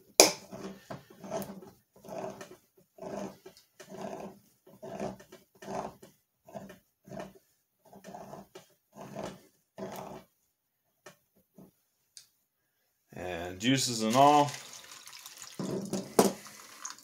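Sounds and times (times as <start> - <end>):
can opener grinding: 0.4 - 6.0, 14.0 - 17.0.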